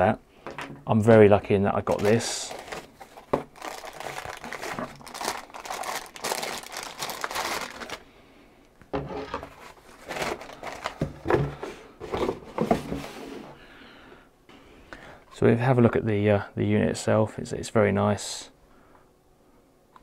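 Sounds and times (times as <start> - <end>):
plastic bag crinkling: 1.8 - 8.1, 9.4 - 11.1
cardboard box and foam rustling: 1.9 - 8.0, 9.4 - 13.4.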